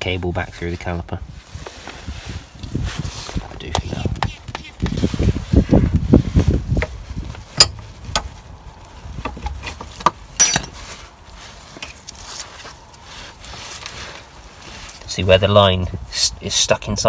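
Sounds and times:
metal parts clicking and knocking: 0:10.4 - 0:10.8
sharp metallic clink: 0:10.4 - 0:10.8.

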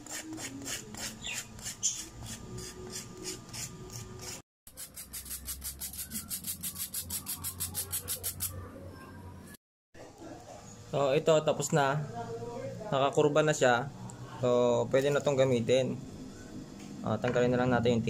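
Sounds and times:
sandpaper rubbing back and forth: 0:00.0 - 0:08.6.

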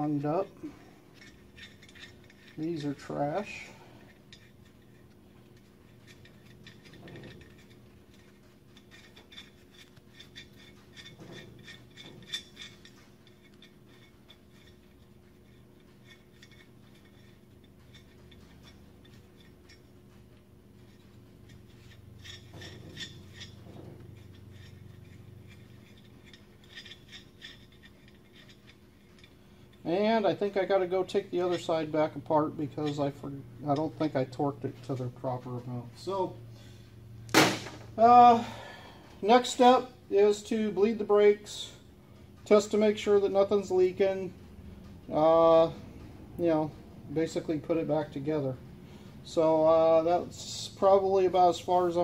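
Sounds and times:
lug nuts clinking on wheel studs: 0:00.0 - 0:35.6.

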